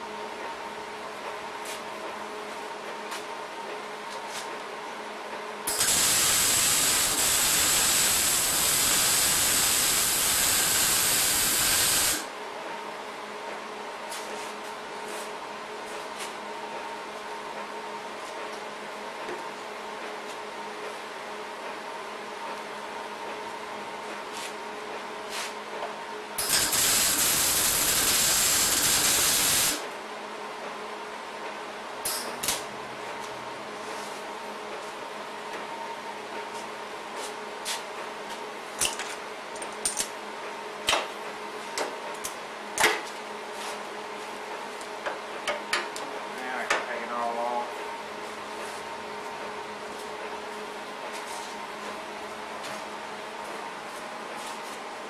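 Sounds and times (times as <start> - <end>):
welder arc crackling hiss: 5.7 - 12.3, 26.4 - 29.8.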